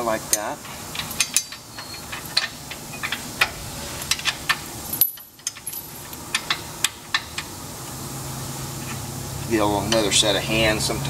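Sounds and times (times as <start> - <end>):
metallic clinks of bolts: 0.3 - 3.2, 4.0 - 7.2.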